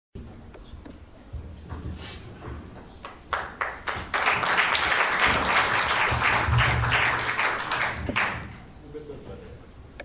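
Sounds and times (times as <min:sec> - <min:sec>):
congregation applauding: 0:03.0 - 0:08.7
single claps: 0:03.0 - 0:08.7.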